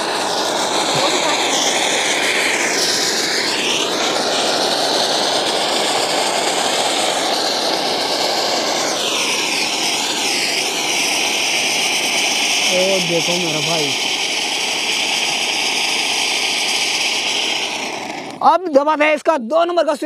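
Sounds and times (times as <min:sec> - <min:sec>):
firework fountain hissing: 0:00.0 - 0:19.2.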